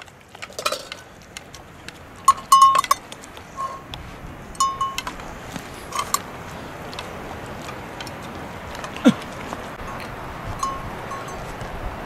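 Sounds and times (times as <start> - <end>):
light clinks: 0.0 - 1.6, 2.2 - 4.0, 4.6 - 5.3, 5.9 - 6.3, 9.8 - 11.5
dog eating from metal bowl: 0.0 - 3.9, 4.6 - 11.3.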